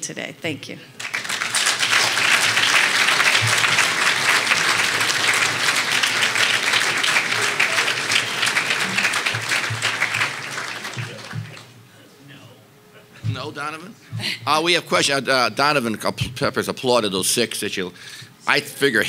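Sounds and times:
audience applauding: 1.0s - 11.8s.

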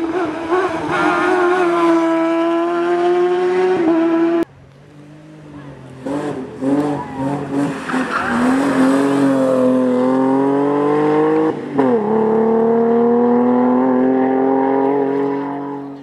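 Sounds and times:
race car engine at full throttle: 0.0s - 16.0s.

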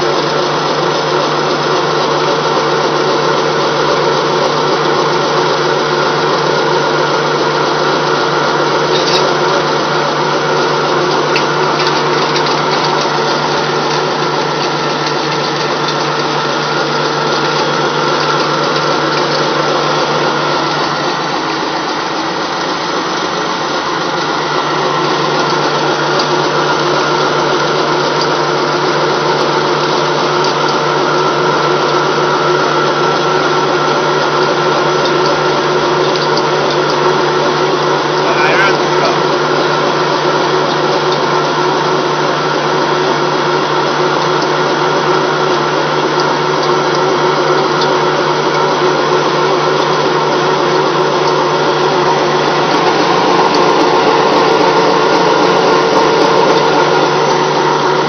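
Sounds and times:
pellet mill machine hum: 0.0s - 58.0s.

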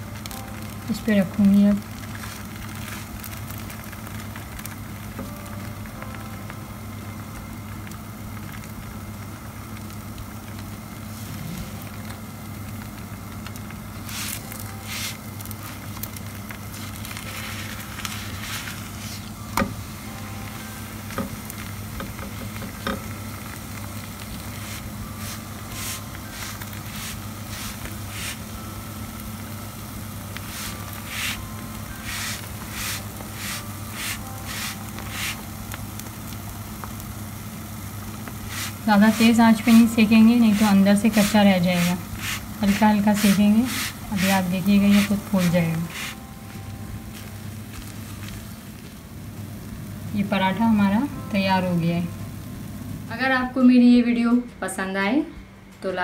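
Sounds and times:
flatbread sizzling in oil: 0.0s - 5.9s, 7.2s - 20.0s, 20.8s - 46.2s
crackles: 0.0s - 20.2s, 21.0s - 50.7s
steady low hum: 0.0s - 56.0s.

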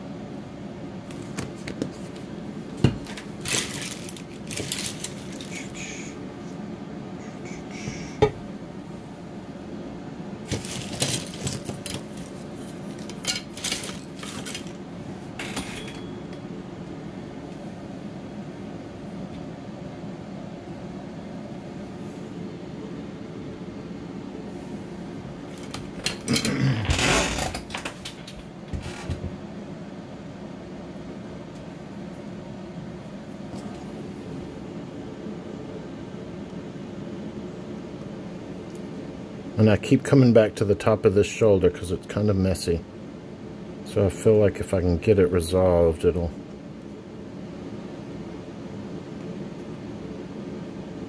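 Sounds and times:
steady low hum: 0.0s - 51.0s
tools clicking and clattering: 3.0s - 5.5s, 10.5s - 12.4s, 13.0s - 14.8s.

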